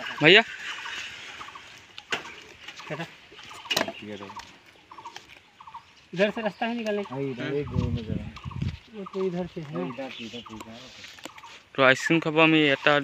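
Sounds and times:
short clucking calls: 0:00.2 - 0:05.9.

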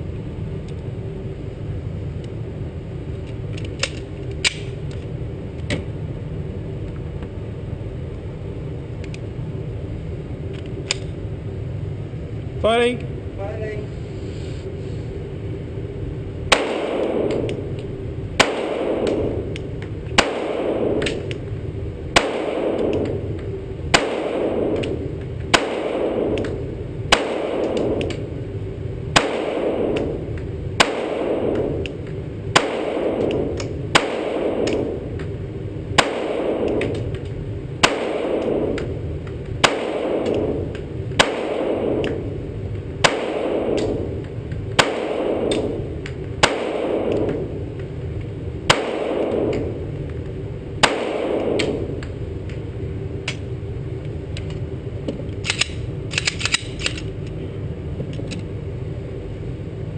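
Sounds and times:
pistol shots echoing indoors: 0:16.5 - 0:17.6, 0:18.4 - 0:19.6, 0:20.2 - 0:21.4, 0:22.1 - 0:23.2, 0:23.9 - 0:26.5, 0:27.1 - 0:28.2, 0:29.1 - 0:30.2, 0:30.8 - 0:31.9, 0:32.5 - 0:35.0, 0:36.0 - 0:37.2, 0:37.8 - 0:38.9, 0:39.6 - 0:42.3, 0:43.0 - 0:44.1, 0:44.8 - 0:45.8, 0:46.4 - 0:47.4, 0:48.7 - 0:49.7, 0:50.8 - 0:51.9.

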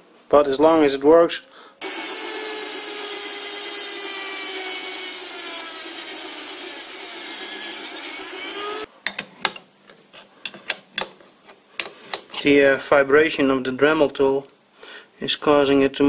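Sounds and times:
rotary tool grinding metal: 0:01.8 - 0:08.9.

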